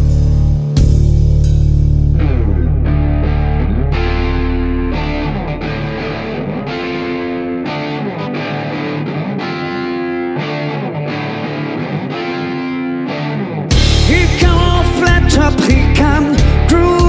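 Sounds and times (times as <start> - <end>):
drums and full band: 0.0 - 2.1, 13.7 - 17.0
overdriven electric guitar chords: 0.0 - 17.0.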